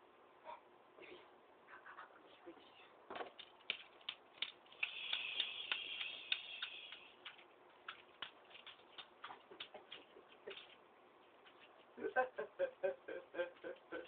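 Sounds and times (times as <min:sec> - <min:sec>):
sharp clicks and ticks: 0:03.3 - 0:10.8
high hiss: 0:04.8 - 0:07.2.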